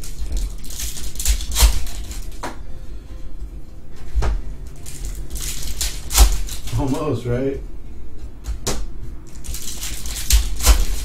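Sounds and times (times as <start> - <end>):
cards rustling and tapping: 0.0 - 2.6, 9.3 - 11.0.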